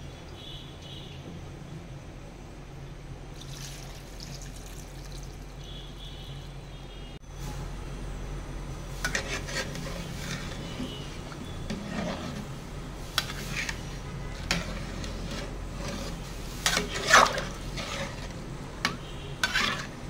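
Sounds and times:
water pouring and splashing: 3.4 - 5.6, 16.0 - 18.3.

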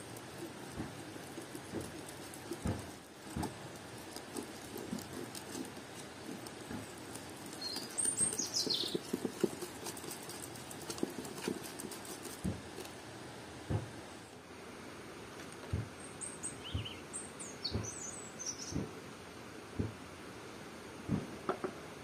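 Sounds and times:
whisk beating batter in bowl: 0.0 - 13.0
high bird chirp: 7.6 - 9.1, 16.2 - 18.8.

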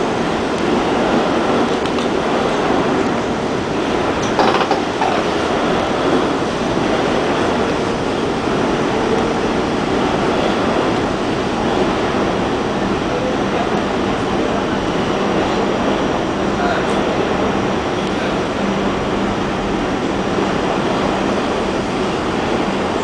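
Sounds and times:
subway train wheels rumbling on rail: 0.0 - 23.0
train clatter: 0.0 - 23.0.

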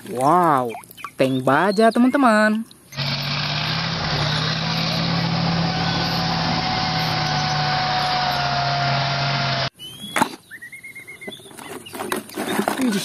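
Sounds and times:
tank engine drone: 3.0 - 9.7.

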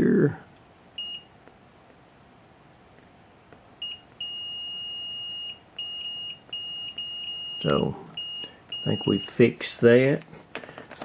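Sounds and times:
multimeter beeping: 1.0 - 1.3, 3.8 - 9.6.

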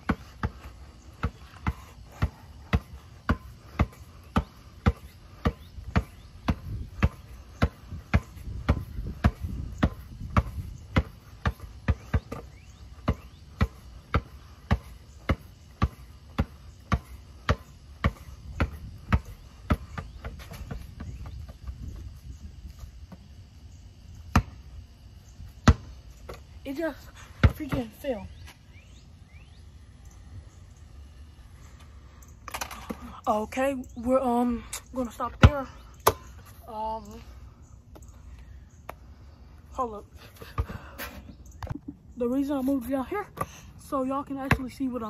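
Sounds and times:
basketball bouncing: 0.0 - 22.1, 24.3 - 24.7, 25.6 - 26.8, 27.4 - 28.2, 35.3 - 36.4, 44.3 - 45.0.

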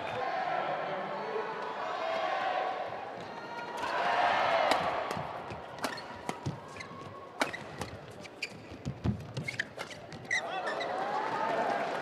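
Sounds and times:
shoes squeaking on court: 5.8 - 10.9.

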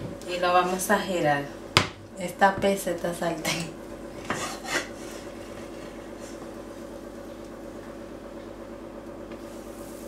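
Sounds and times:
machine hum with held tones: 4.9 - 10.0.

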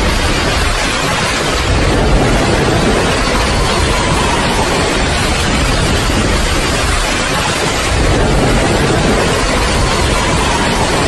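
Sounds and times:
heavy rain: 0.0 - 11.0
deep low rumble: 1.7 - 7.1, 7.8 - 11.0.

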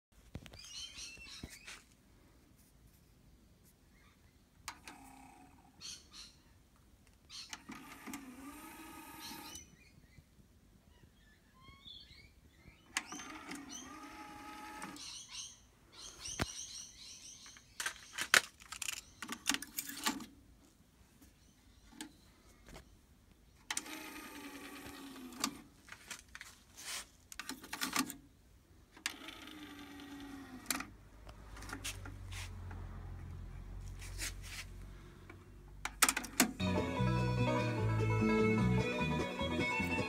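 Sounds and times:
tape mechanism whirring: 7.5 - 9.6, 12.9 - 15.1, 23.7 - 26.1.

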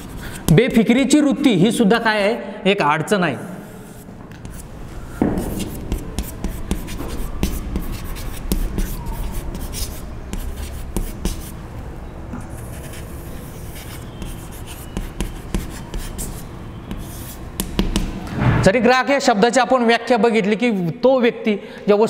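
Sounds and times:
chalk scratching on chalkboard: 0.0 - 1.9, 3.6 - 11.6, 12.4 - 18.2.

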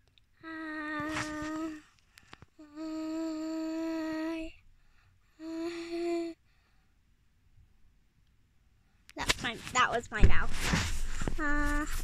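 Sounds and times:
girl singing long steady notes: 0.4 - 1.9, 2.6 - 4.6.

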